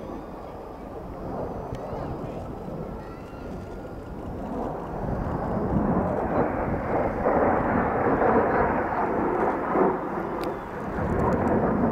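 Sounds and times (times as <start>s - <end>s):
jet aircraft roar: 0.0s - 11.9s.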